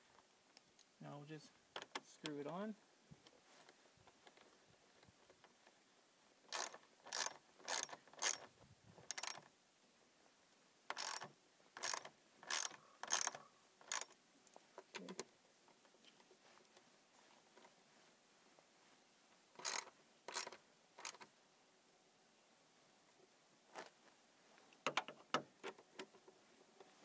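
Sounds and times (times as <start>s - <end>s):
hand ratchet clicking: 6.5s - 9.4s, 10.9s - 14.1s, 19.6s - 21.2s.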